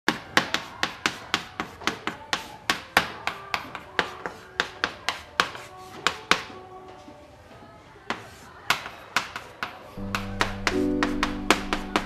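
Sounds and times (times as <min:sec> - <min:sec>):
sharp tapping: 0:08.7 - 0:12.0.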